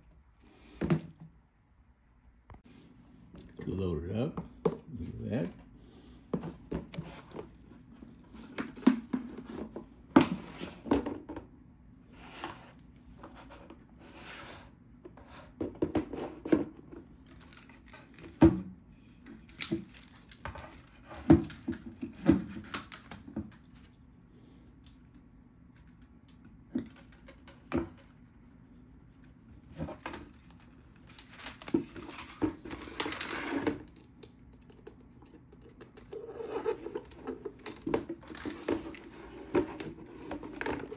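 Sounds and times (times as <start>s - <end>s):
plastic scraping: 31.1s - 40.9s.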